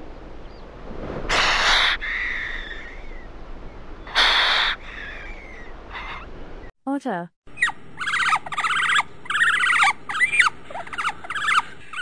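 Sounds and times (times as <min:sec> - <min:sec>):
steady background hiss: 0:00.0 - 0:06.7
harsh hissing calls: 0:01.3 - 0:03.3, 0:04.0 - 0:06.3.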